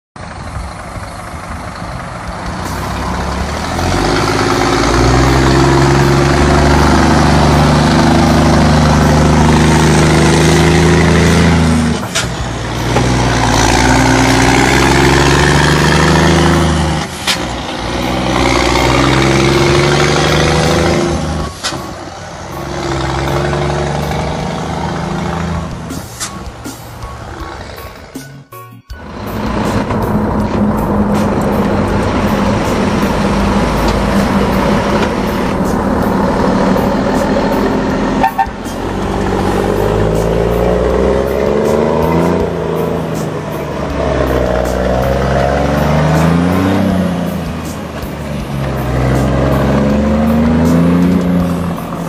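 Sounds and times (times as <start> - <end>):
truck diesel engine revving: 0.2 - 28.3, 29.0 - 52.0
exhaust cracks: 29.0 - 52.0.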